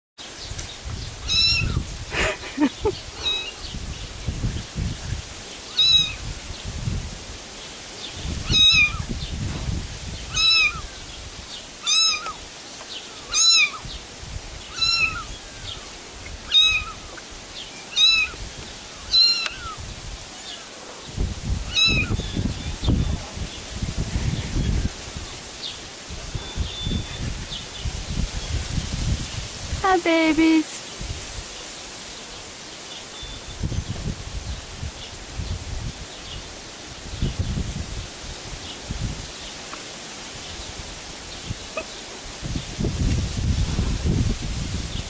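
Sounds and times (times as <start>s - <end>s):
kitten mewing: 3.2s - 3.5s, 16.5s - 17.1s, 21.7s - 22.1s.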